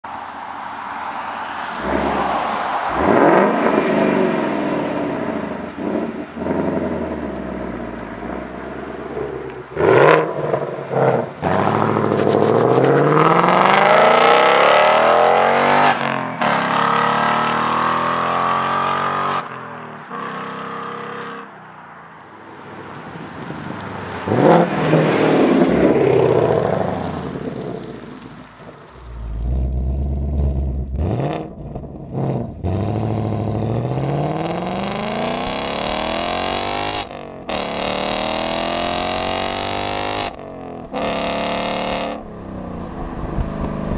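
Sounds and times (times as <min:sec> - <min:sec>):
car engine accelerating hard: 0:01.6 - 0:21.4, 0:22.8 - 0:43.9
deep engine rumble: 0:25.5 - 0:36.2.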